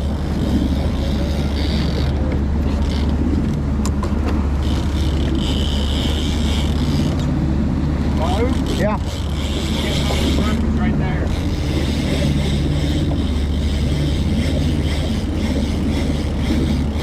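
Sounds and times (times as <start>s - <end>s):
outboard motors humming: 0.0s - 17.0s
wind and water rushing: 0.0s - 17.0s.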